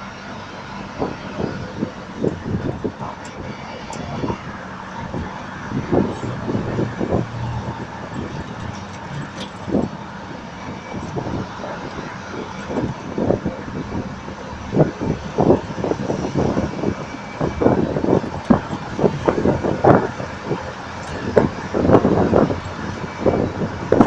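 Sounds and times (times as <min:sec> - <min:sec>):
truck road and engine noise: 0:00.0 - 0:24.0
wind buffeting microphone: 0:00.0 - 0:24.0.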